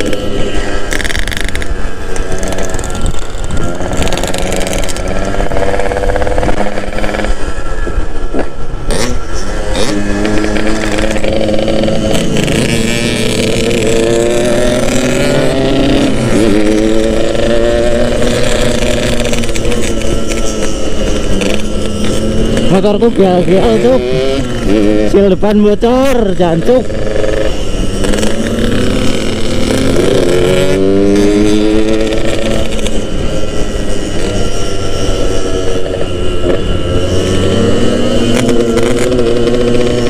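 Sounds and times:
wind rushing over microphone: 0.0 - 26.1
motorcycle engine revving: 0.0 - 40.0.

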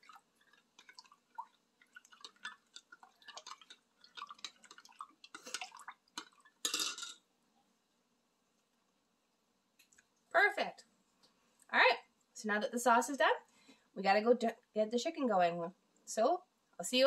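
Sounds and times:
liquid sloshing: 0.0 - 7.0
spoon clattering against cup: 2.2 - 7.2
metal spoon clinking on glass: 6.6 - 7.2.

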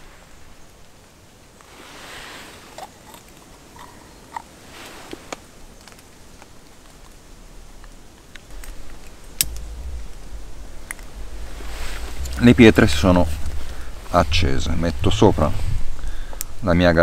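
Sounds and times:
soft rustling: 7.9 - 16.6.

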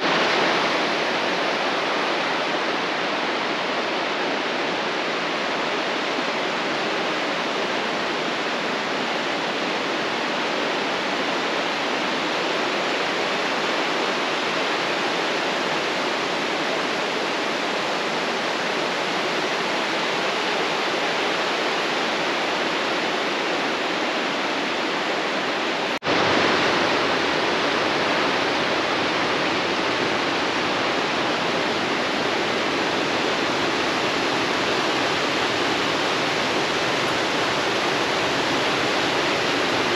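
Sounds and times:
mountain stream rushing: 0.0 - 39.9.

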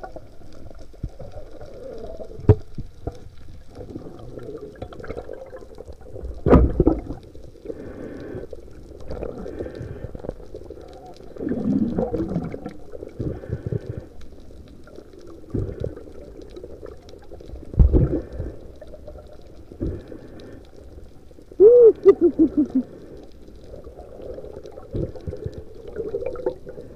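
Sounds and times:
water gurgling underwater: 0.0 - 7.9, 8.9 - 13.9, 14.6 - 20.2, 21.4 - 26.9.

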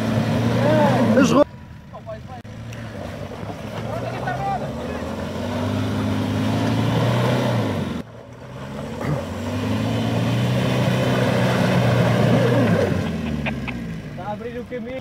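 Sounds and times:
diesel engine revving under load: 0.0 - 1.5, 2.4 - 14.7.

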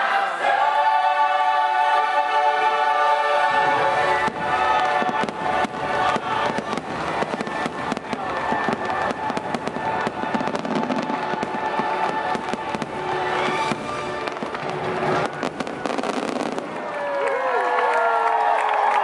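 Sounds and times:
music playing: 0.0 - 16.8
fireworks bursting and crackling: 3.3 - 17.2.

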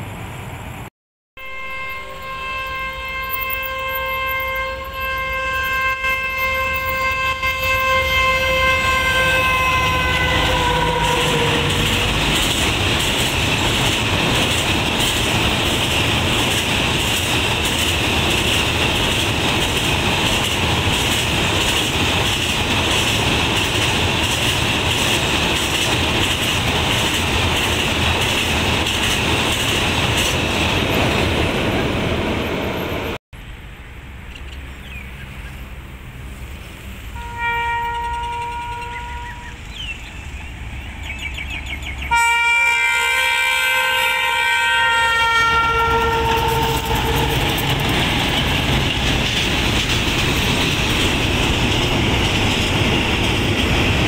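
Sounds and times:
locomotive horn blast: 1.4 - 12.3, 37.1 - 39.7, 42.1 - 47.8
train wheels clacking over rail joints: 9.7 - 31.8, 45.5 - 54.0.

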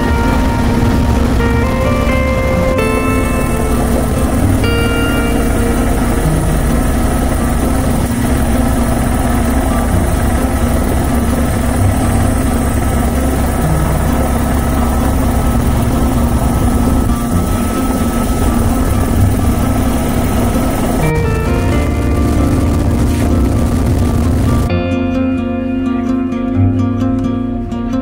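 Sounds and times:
helicopter rotor and engine: 0.0 - 24.7.

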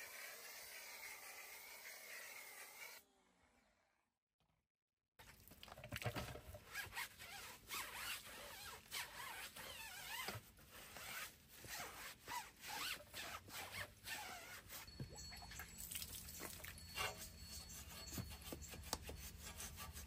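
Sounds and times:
brush scrubbing soapy tire: 16.8 - 20.0.

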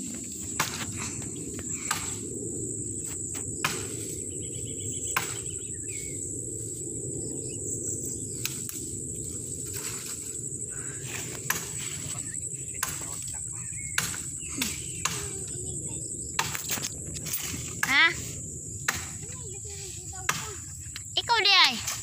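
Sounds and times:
high-pitched insect drone: 0.0 - 22.0
blade chopping wood: 0.6 - 0.9.

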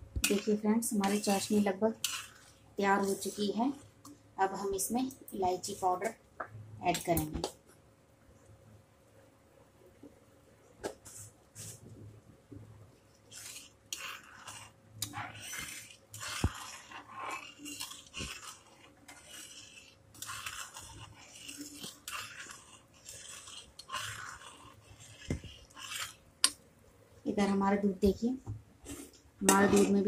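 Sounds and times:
spatula scraping steel pan: 0.2 - 3.7, 13.3 - 26.2, 29.4 - 30.0.

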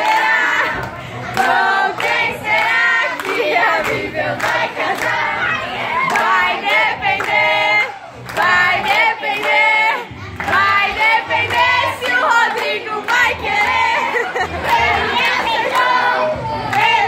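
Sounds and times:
group of young voices singing: 0.0 - 17.0
hand claps: 1.4 - 5.2.

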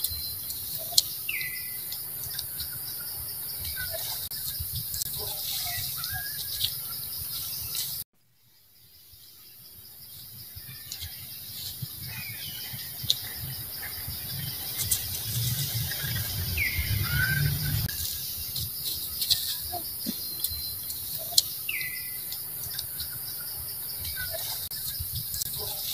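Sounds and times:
pulsing insect drone: 0.0 - 25.9
low rumble: 12.6 - 18.0
sharp ticks: 22.2 - 23.2.

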